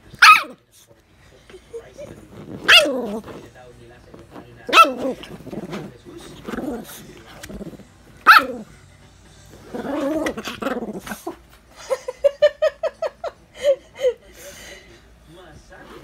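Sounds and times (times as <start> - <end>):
dog barking: 0.2 - 0.6, 2.6 - 3.2, 4.7 - 5.3, 8.2 - 8.7
small dog growling and snarling: 2.0 - 3.5, 4.7 - 8.8, 9.5 - 11.4.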